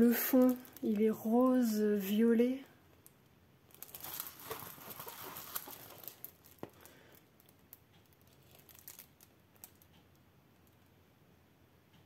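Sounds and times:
plastic film crinkling: 0.0 - 1.7, 3.7 - 9.9.

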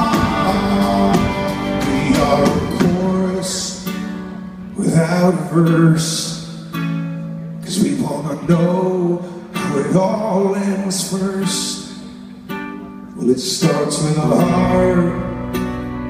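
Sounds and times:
rock band playing: 0.0 - 5.0
strummed guitar chords: 0.0 - 16.0.

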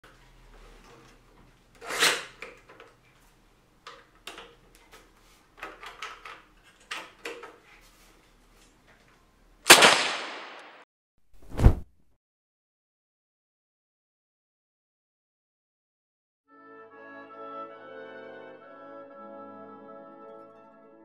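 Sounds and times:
plastic toy gun clicks and clacks: 1.8 - 3.0, 5.6 - 7.6.

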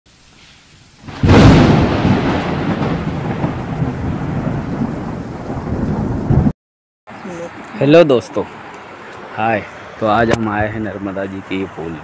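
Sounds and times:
thunderclap with rumble: 1.1 - 6.5.

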